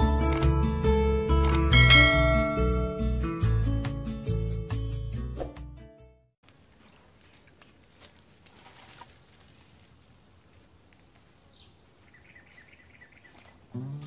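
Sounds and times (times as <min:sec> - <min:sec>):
footsteps on dry leaves: 0:06.4 - 0:13.7
high bird calls: 0:11.4 - 0:13.7.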